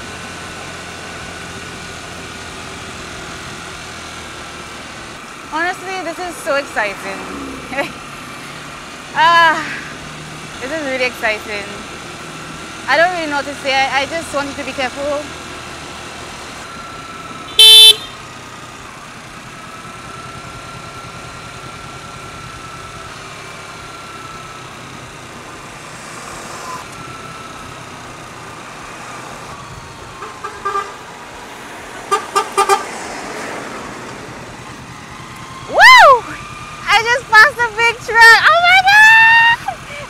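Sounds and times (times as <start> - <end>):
road and engine noise: 0.0 - 40.0
vehicle horn toot: 17.5 - 18.3, 30.2 - 31.0, 32.1 - 32.9
quick beeps: 17.6 - 18.1.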